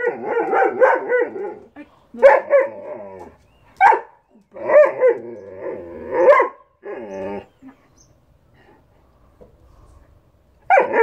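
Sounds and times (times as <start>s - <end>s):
dog barking and grumbling: 0.0s - 7.6s, 10.7s - 11.0s.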